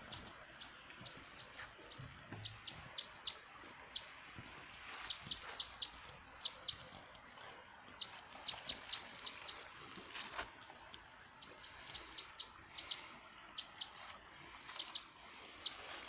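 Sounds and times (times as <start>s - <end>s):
small bird chirping: 0.0s - 9.7s, 13.6s - 16.0s
water trickling in stream: 0.0s - 16.0s.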